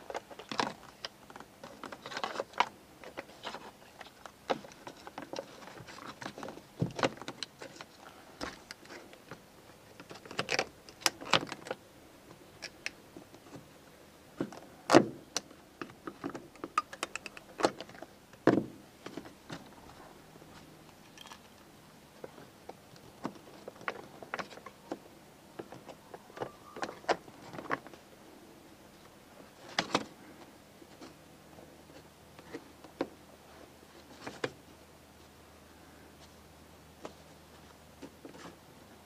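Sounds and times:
plastic and metal parts clicking: 10.0s - 11.8s, 14.4s - 18.4s.

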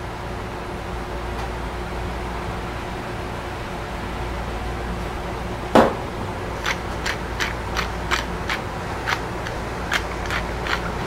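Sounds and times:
pepper mill grinding: 6.6s - 11.0s.

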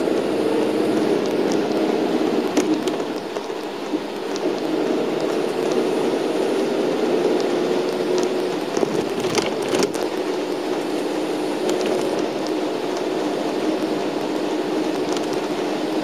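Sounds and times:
bus engine and tyre drone: 0.0s - 16.0s
water hissing under wheels: 0.0s - 16.0s
clicks and rattles: 8.2s - 10.3s.

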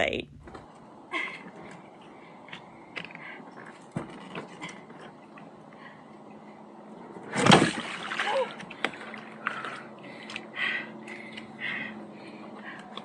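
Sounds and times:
water splash: 7.3s - 9.1s.

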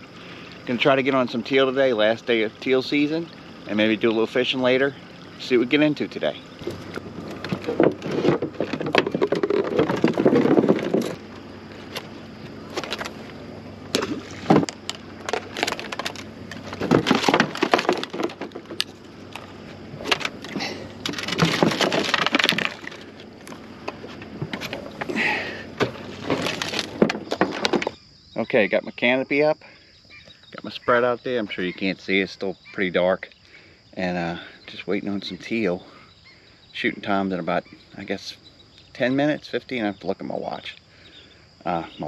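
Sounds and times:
plastic decoys knocking and clacking: 6.6s - 12.0s, 13.9s - 25.2s, 25.8s - 28.0s
rustling: 6.6s - 28.0s.

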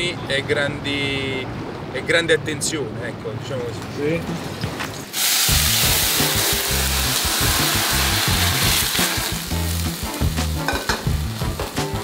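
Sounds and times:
food sizzling in hot pan: 5.1s - 12.0s
background music with bass line: 5.5s - 12.0s.

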